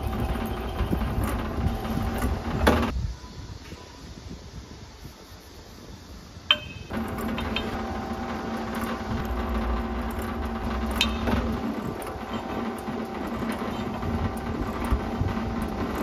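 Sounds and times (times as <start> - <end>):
drill press motor humming: 0.0 - 2.9, 6.9 - 16.0
drill boring into aluminium: 6.9 - 16.0.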